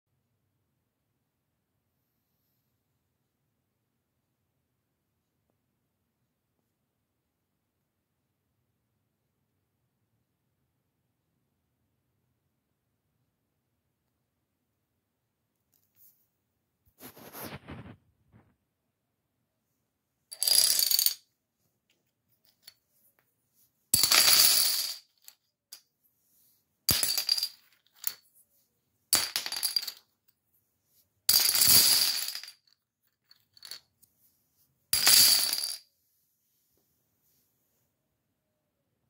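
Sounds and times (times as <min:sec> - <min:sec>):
plastic dominoes clattering on wood: 0:20.3 - 0:21.2, 0:24.0 - 0:25.4, 0:26.9 - 0:28.3, 0:29.2 - 0:30.1, 0:31.3 - 0:33.9, 0:35.0 - 0:35.8.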